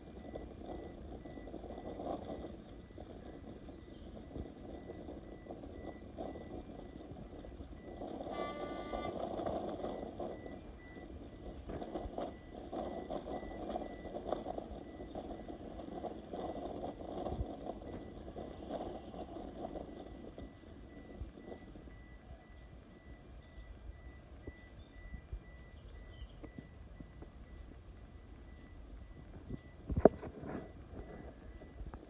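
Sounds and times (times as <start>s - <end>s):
diesel locomotive engine: 0.0s - 32.0s
faint high beep: 0.0s - 32.0s
brief high tone: 8.3s - 9.3s.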